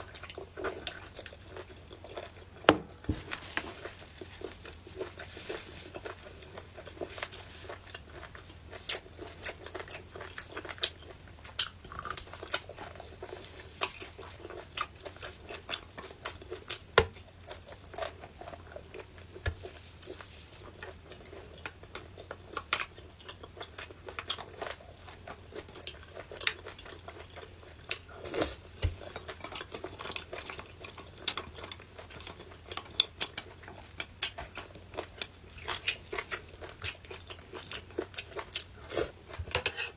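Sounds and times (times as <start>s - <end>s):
handling noises: 2.6s - 4.4s
metal utensil scraping bone: 39.5s - 39.9s.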